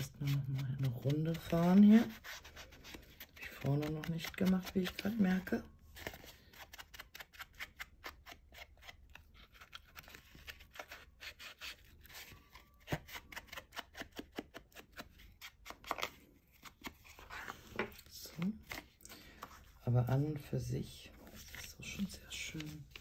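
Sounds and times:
scratchy rubbing on cardboard: 0.0s - 5.2s.

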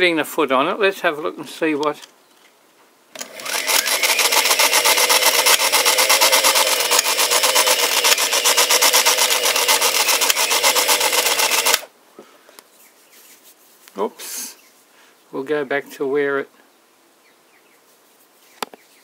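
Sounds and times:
needle mechanism clatter: 3.2s - 11.9s
toy sewing machine whirring: 3.2s - 11.9s.

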